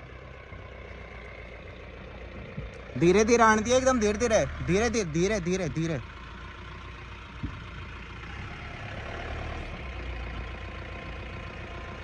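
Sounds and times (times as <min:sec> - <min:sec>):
diesel engine idling: 0:00.0 - 0:12.0
low thump: 0:07.4 - 0:07.7.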